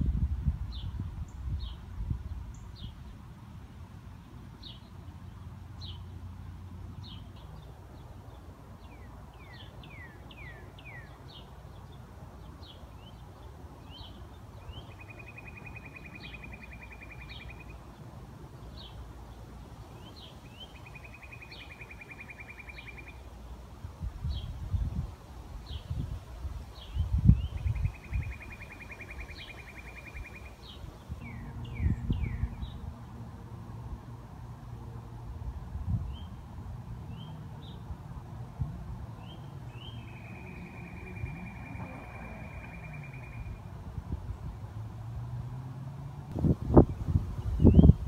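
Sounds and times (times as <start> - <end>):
outdoor background noise: 0.0 - 48.0
small birds chirping: 7.0 - 23.6, 26.7 - 32.8, 39.1 - 43.7
rapid dry bird trill: 39.8 - 43.7.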